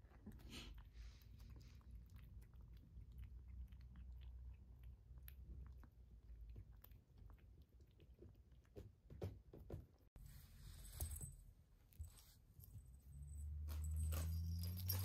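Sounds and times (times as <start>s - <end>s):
kitten crunching dry kibble: 0.0s - 9.0s.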